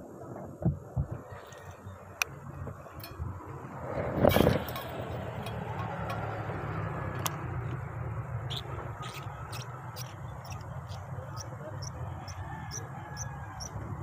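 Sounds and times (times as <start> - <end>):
fishing reel whirring: 8.5 - 13.7.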